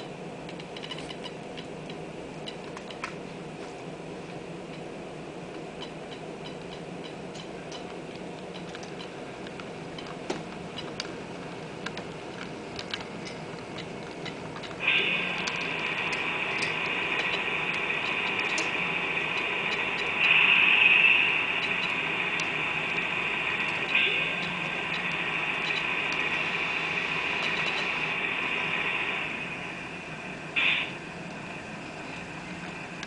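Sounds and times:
high hissing whine: 0.0 - 33.0
low steady hum: 0.0 - 33.0
model train wheels clicking: 5.8 - 29.2.

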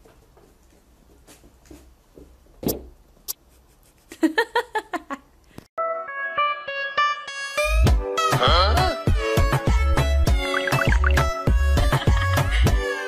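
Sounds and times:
music: 5.8 - 13.0.

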